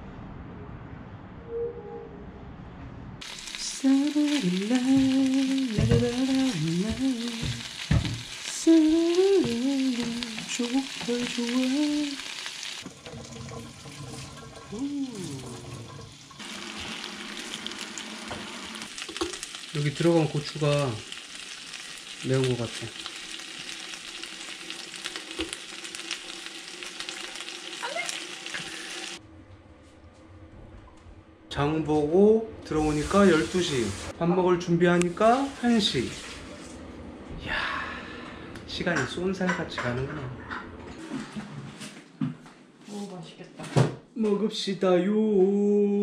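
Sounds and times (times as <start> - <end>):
meat sizzling in a frying pan: 3.2 - 12.9, 16.4 - 29.2.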